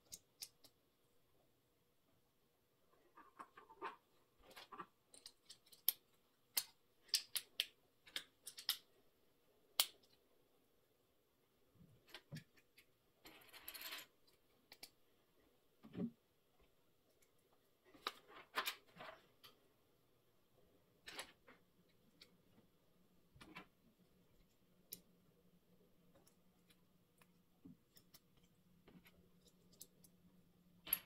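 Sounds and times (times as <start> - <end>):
plastic toy bricks clicking: 4.6 - 8.9.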